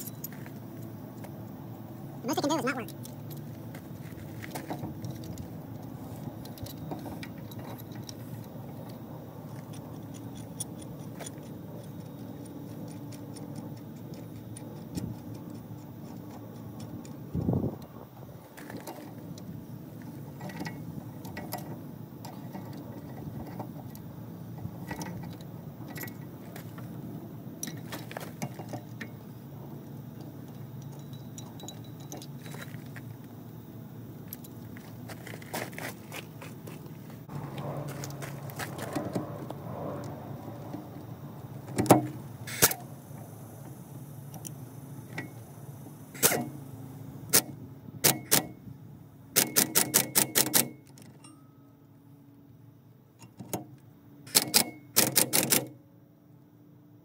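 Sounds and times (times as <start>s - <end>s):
steady low hum: 0.0s - 57.0s
metallic tool clicks and clinks: 30.5s - 32.8s.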